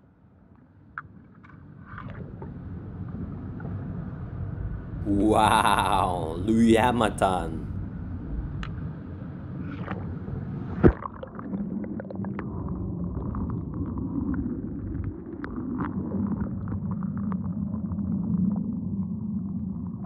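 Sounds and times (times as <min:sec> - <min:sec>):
underwater churning water rumble: 0:09.5 - 0:20.0
crackling bubbles: 0:09.7 - 0:19.9.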